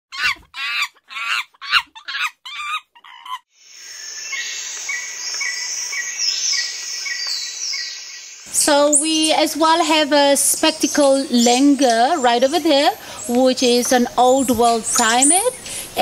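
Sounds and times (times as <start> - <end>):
bird-like animal calls: 0.1 - 3.4
outdoor ambience hiss: 3.5 - 16.0.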